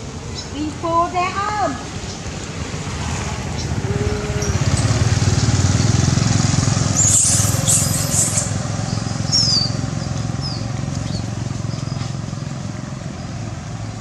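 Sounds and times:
small engine running: 0:03.6 - 0:13.4
macaques squealing: 0:07.0 - 0:08.6.

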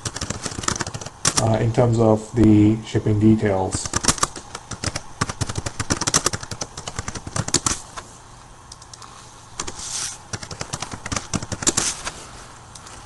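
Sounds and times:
computer keyboard typing: 0:00.0 - 0:01.6, 0:03.8 - 0:07.8, 0:09.6 - 0:11.9.

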